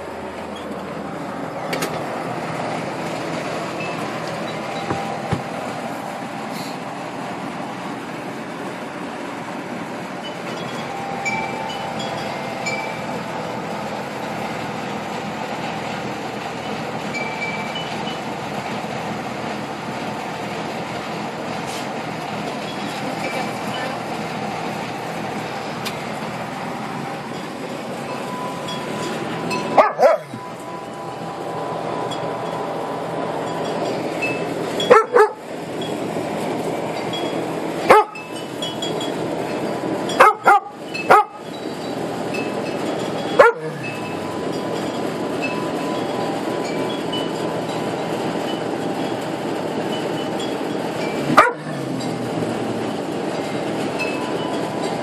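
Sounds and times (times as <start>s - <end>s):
dogs barking: 29.6s - 30.4s, 34.8s - 35.5s, 37.8s - 38.3s, 40.1s - 41.4s, 43.4s - 43.9s, 51.2s - 53.0s.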